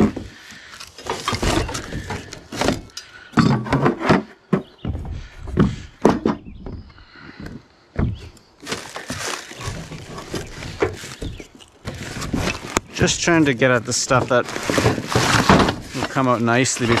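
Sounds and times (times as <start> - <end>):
cardboard and plastic rustling: 0.0 - 3.0, 8.6 - 17.0
heavy pieces knocking: 8.0 - 17.0.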